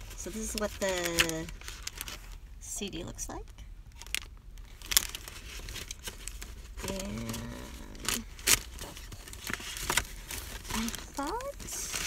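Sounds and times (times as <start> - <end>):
paper packaging rustling: 0.0 - 2.4, 4.0 - 12.0
person humming: 6.8 - 8.2.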